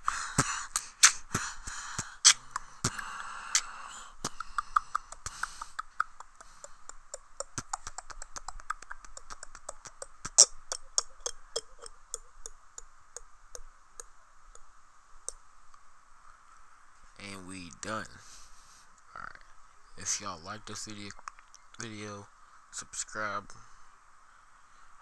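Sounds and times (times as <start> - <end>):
person beatboxing: 0.0 - 12.6.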